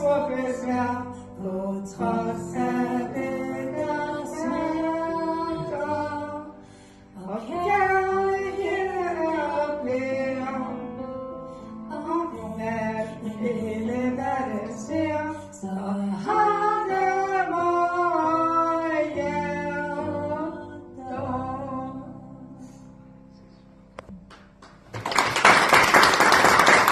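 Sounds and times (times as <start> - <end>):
woman singing: 0.0 - 6.6, 7.2 - 10.8, 11.9 - 22.6.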